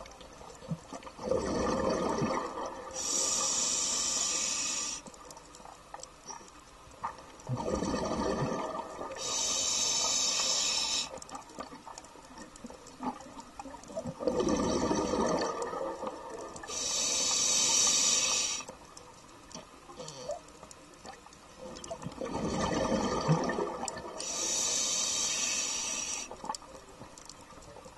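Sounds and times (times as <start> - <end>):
exhaled bubbles burbling: 1.1 - 3.0, 7.4 - 9.2, 13.0 - 16.6, 21.0 - 24.2
hissing regulator inhale: 3.0 - 5.1, 9.2 - 11.2, 16.6 - 18.7, 24.2 - 26.4.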